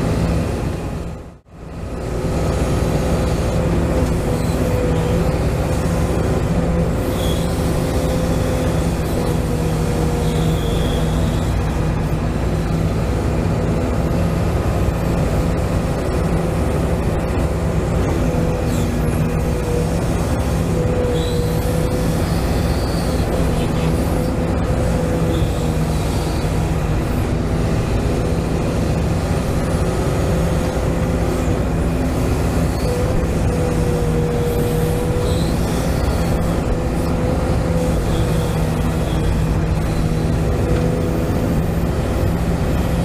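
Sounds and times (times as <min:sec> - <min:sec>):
toy excavator motor whine: 0:04.0 - 0:11.7, 0:18.2 - 0:27.0, 0:31.3 - 0:43.0.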